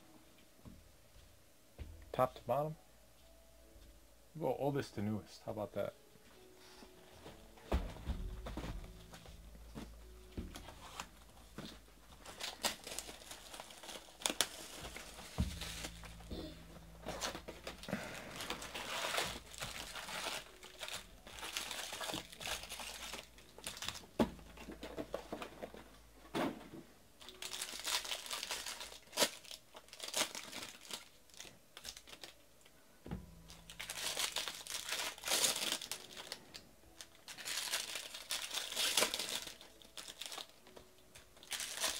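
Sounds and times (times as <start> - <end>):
foil pack crinkling and tearing: 10.5 - 25.8, 27.2 - 32.4, 33.5 - 41.9.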